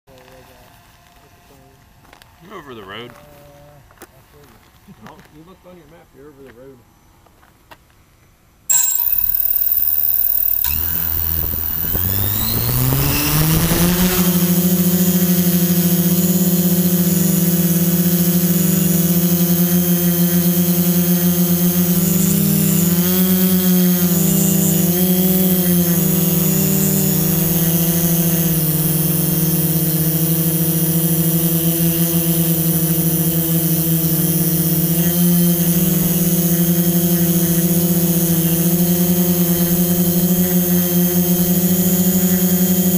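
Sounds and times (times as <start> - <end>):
drone propellers whining: 8.7 - 42.9.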